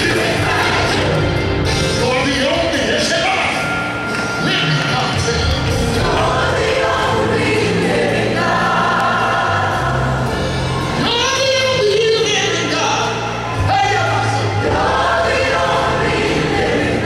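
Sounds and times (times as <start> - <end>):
choir singing: 0.0 - 1.9, 4.7 - 11.0, 13.9 - 17.0
band with steady bass: 0.0 - 17.0.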